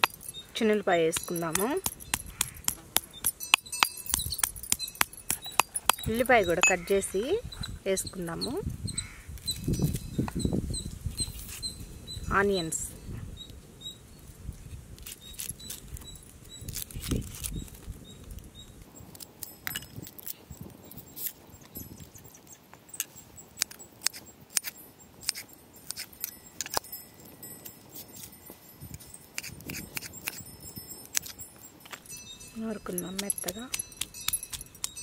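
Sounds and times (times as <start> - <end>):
slices dropping into stone mortar: 0.0 - 6.8, 32.9 - 35.0.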